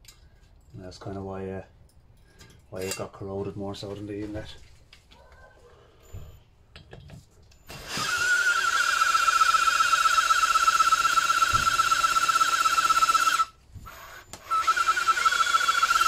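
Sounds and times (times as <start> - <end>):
cordless drill whining: 7.6 - 16.0
drill clicks: 7.7 - 16.0.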